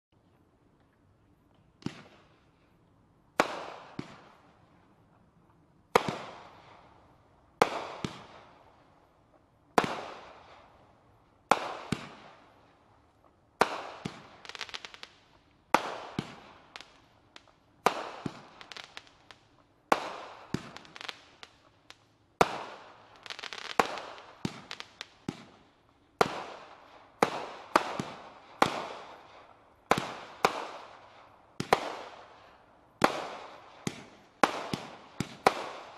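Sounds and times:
firework bangs: 5.9s - 6.8s, 11.5s - 12.4s, 13.6s - 15.0s, 15.7s - 21.5s, 22.4s - 25.6s, 29.9s - 31.0s, 31.6s - 32.3s, 33.0s - 35.9s
firework crackling: 13.6s - 35.9s.

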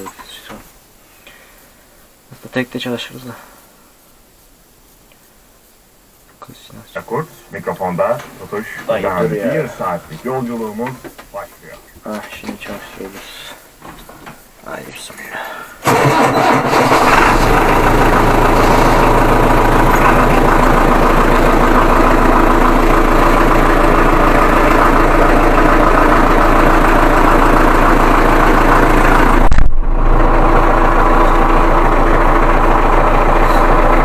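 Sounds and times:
diesel tractor engine idling: 7.0s - 11.5s, 15.4s - 34.0s.

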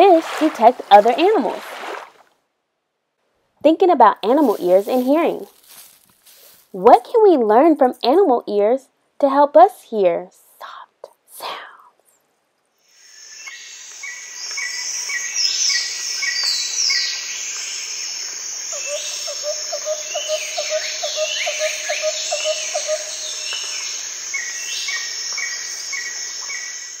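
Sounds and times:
high insect drone: 13.0s - 27.0s
birds chirping and whistling: 18.7s - 26.8s.

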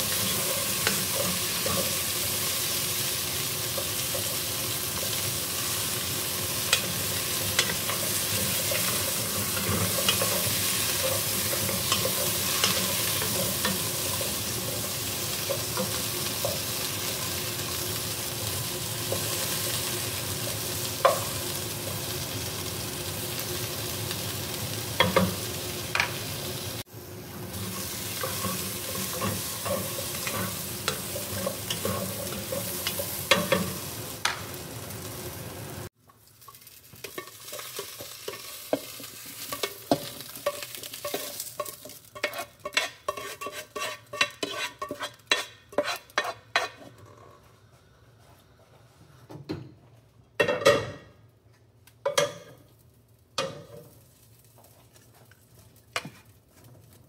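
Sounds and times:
potatoes sizzling in oil: 0.0s - 46.8s, 52.1s - 57.0s
wooden spoon scraping pan: 37.1s - 47.0s.

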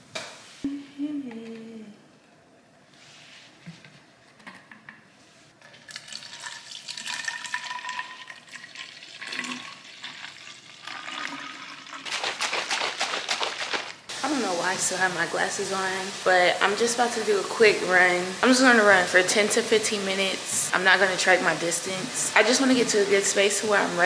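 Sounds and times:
water pouring into bottle: 5.7s - 14.1s
bottle shaken sloshing: 11.6s - 14.1s.

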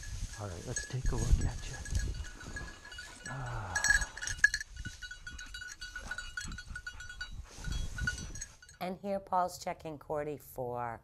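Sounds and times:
rustling in dry grass: 0.0s - 8.8s.

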